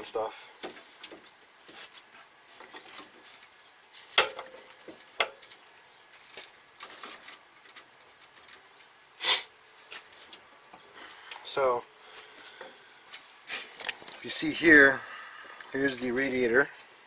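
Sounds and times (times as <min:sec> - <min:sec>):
small metallic clicks and taps: 0:04.2 - 0:05.9.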